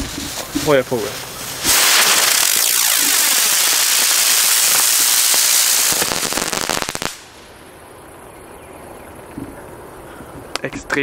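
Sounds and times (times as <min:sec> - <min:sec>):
firework rising with hiss: 0:00.0 - 0:07.6
firework crackling: 0:00.0 - 0:07.8.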